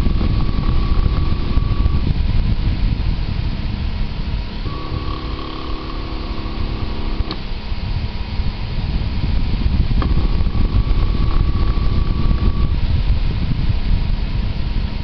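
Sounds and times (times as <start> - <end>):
fan noise: 0.0 - 15.0
stepper motor whine: 0.0 - 15.0
sharp click: 7.1 - 7.5.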